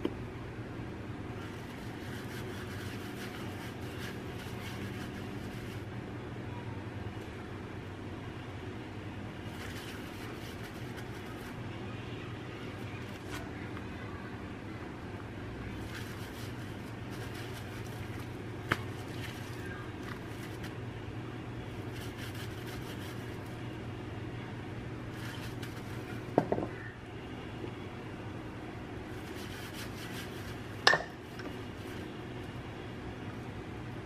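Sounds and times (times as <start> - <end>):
steady low hum: 0.0 - 34.0
hands rubbing seasoning into meat: 1.4 - 5.9, 9.5 - 11.6, 15.8 - 20.7, 21.8 - 23.6, 29.1 - 30.8.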